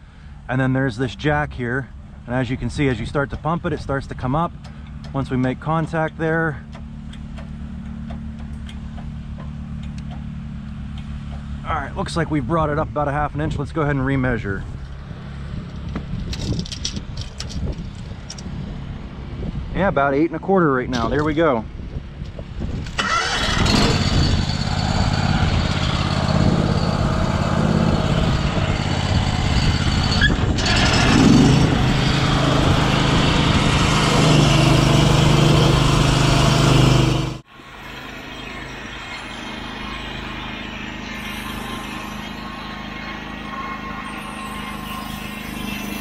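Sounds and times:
sawmill engine under load: 22.9 - 46.0
saw blade cutting log: 29.4 - 37.4.

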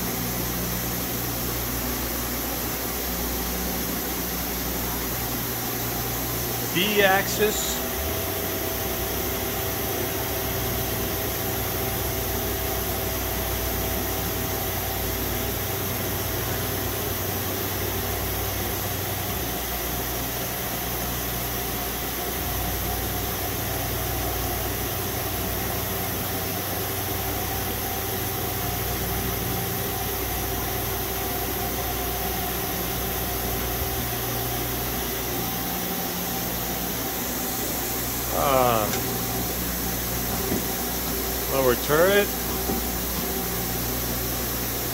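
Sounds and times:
machine hum and hiss: 0.0 - 44.9.

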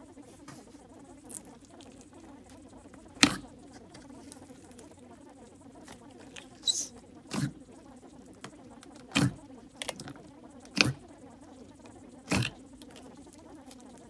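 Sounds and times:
faint low hum: 0.0 - 14.0
slime squishing with sticky clicks: 1.2 - 5.0, 8.3 - 11.1, 11.8 - 13.9.

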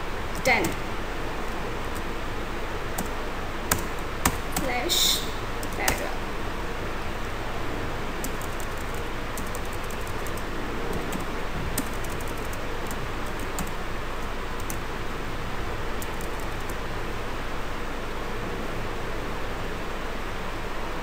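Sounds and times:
keyboard key clicks: 3.7 - 4.8, 8.2 - 13.7, 16.0 - 16.8.

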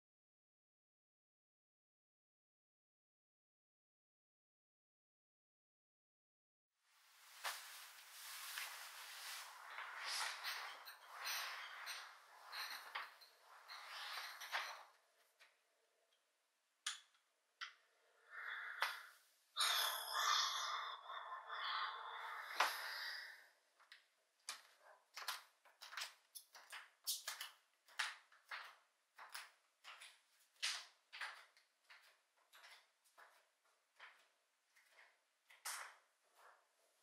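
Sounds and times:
rustling on a bed: 7.0 - 14.9.

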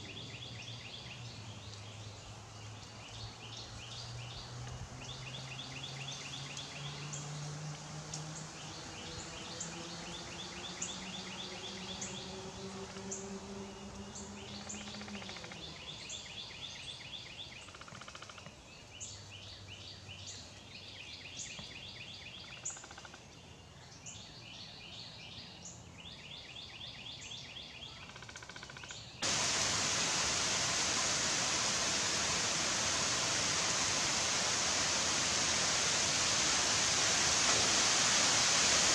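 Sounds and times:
heavy rain on forest: 0.0 - 17.1, 29.2 - 38.9
faint low hum rising in pitch: 5.0 - 15.8.

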